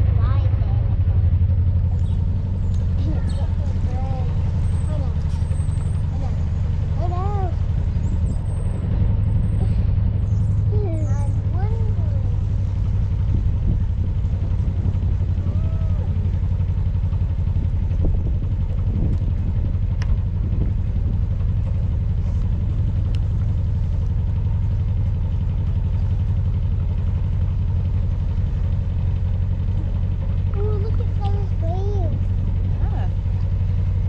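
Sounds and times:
diesel engine running steadily: 0.0 - 34.0.

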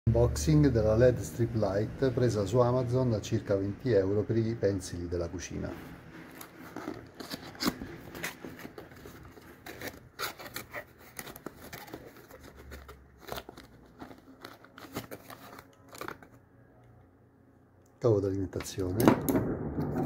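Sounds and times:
cardboard box being opened: 6.2 - 16.3.

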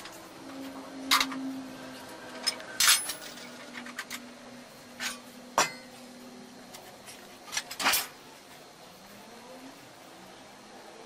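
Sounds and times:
tools clinking on metal rest: 5.0 - 5.9.

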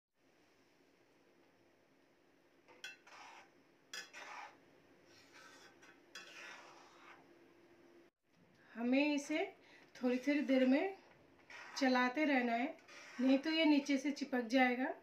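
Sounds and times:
ladle scraping pan: 2.7 - 7.2, 11.4 - 13.9.

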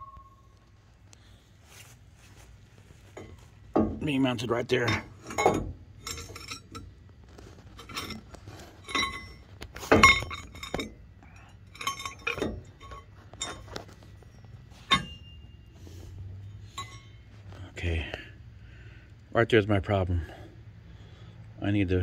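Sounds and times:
metal pieces clinking and knocking: 4.8 - 6.9, 7.5 - 15.4.

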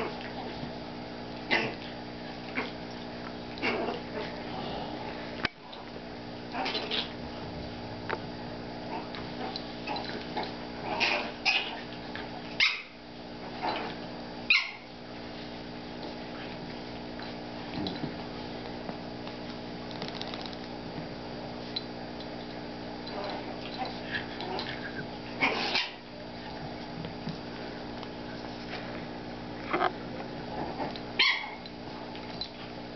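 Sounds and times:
dogs yipping and whimpering: 6.6 - 7.2, 12.6 - 13.0, 14.5 - 14.9, 31.2 - 31.7.

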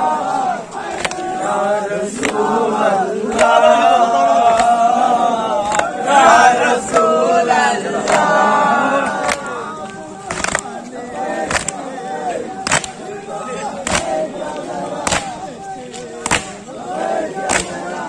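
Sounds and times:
crowd of men chanting: 0.0 - 18.0
hands slapping chests: 0.8 - 1.3, 2.2 - 2.5, 3.3 - 3.6, 4.4 - 4.8, 5.6 - 5.9, 9.2 - 10.8, 11.4 - 11.8, 12.6 - 13.0, 13.8 - 14.2, 15.0 - 16.6, 17.4 - 17.8.

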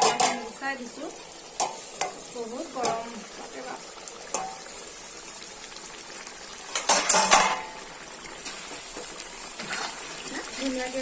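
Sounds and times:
metal ladle scraping iron pan: 0.0 - 0.5, 6.7 - 7.8, 9.6 - 10.3
gravy hissing on flame: 0.0 - 11.0.

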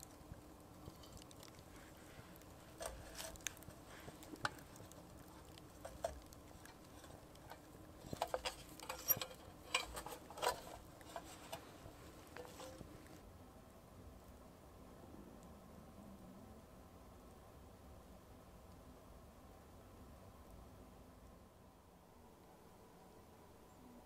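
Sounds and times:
crackling campfire: 0.0 - 23.0
lantern clicks and metal clinks: 5.7 - 12.9.

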